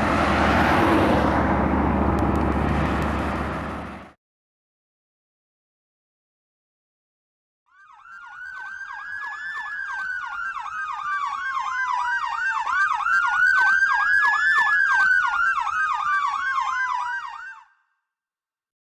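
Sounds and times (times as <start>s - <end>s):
electronic siren yelping: 7.7s - 17.8s.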